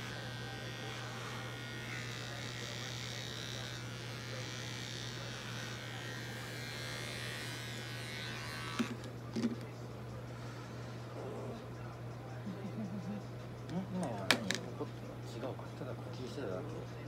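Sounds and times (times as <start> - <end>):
pet clipper buzzing: 0.0 - 9.6.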